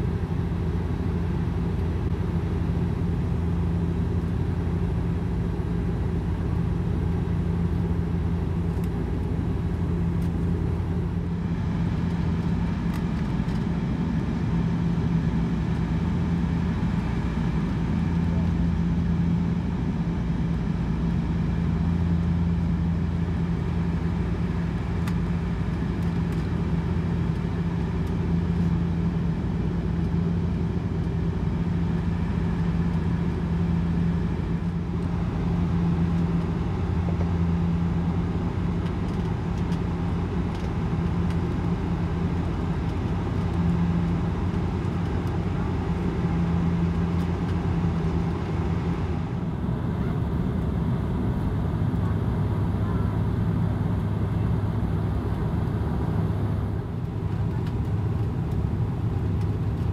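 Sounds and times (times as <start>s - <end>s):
airplane cabin engine drone: 0.0s - 59.9s.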